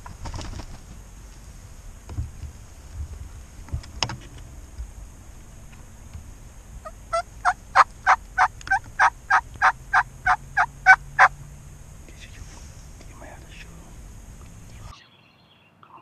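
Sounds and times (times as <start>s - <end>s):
turkey yelping: 6.8s - 11.3s.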